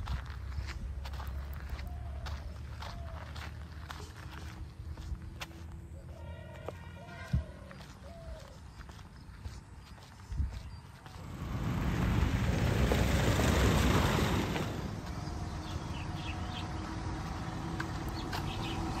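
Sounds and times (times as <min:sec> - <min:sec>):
motor vehicle passing: 0:11.0 - 0:19.0.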